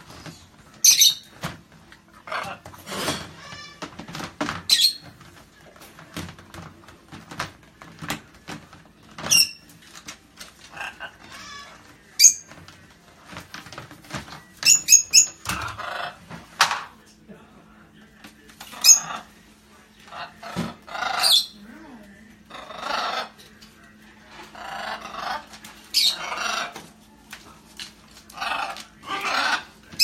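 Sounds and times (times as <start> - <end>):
parrot squawks: 0.8 - 1.4, 10.7 - 12.5, 20.1 - 21.6, 22.5 - 23.4, 24.4 - 26.8, 28.3 - 30.0.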